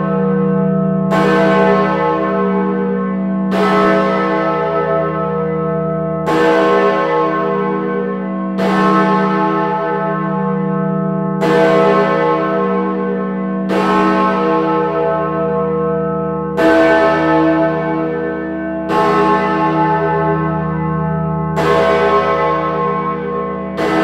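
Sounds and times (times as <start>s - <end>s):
large church bell tolling: 0.0s - 24.0s.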